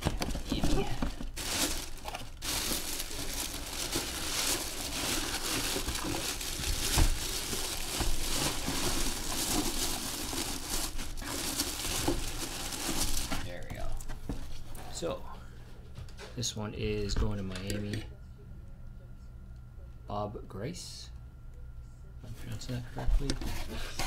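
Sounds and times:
plastic bag crinkling: 0:00.0 - 0:14.1.

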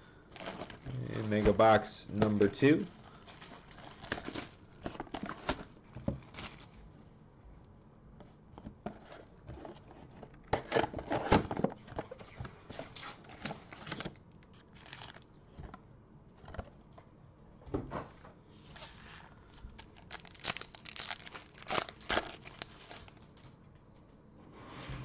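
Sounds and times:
plastic wrap tearing and crinkling: 0:00.4 - 0:06.8, 0:12.8 - 0:15.3, 0:18.7 - 0:23.5.

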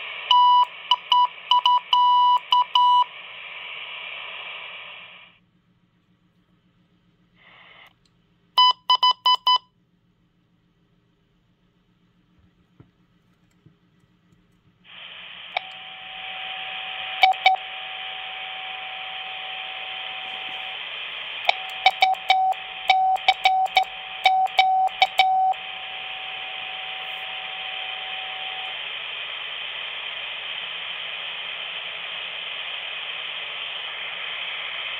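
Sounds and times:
radio static hiss: 0:00.0 - 0:05.4, 0:07.3 - 0:08.0, 0:14.8 - 0:34.9
morse code tone: 0:21.5 - 0:27.3.

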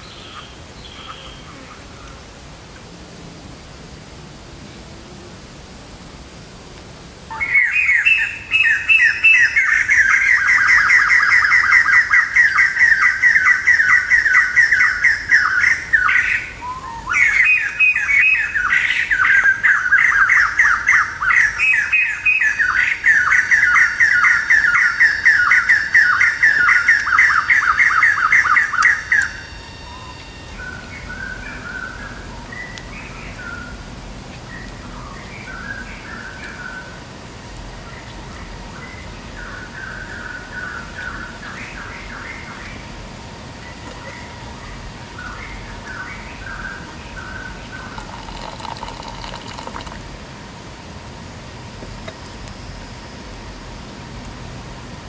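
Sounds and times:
faint chirps: 0:21.6 - 0:33.8.

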